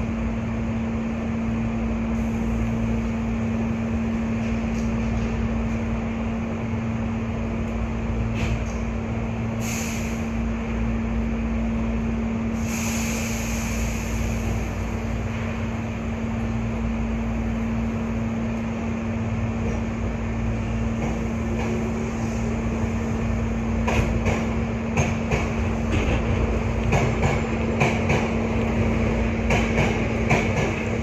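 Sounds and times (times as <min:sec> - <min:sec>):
train equipment humming: 0:00.0 - 0:31.0
short air hisses: 0:09.6 - 0:10.4, 0:12.6 - 0:14.8.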